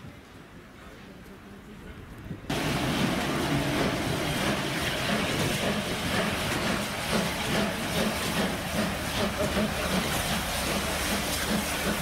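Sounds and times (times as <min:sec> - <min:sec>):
steam hissing: 0:02.5 - 0:12.0.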